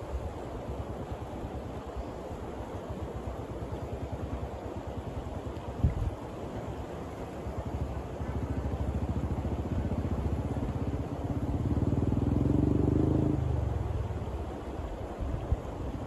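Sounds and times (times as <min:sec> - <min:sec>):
vehicle engine passing: 0:08.4 - 0:14.2.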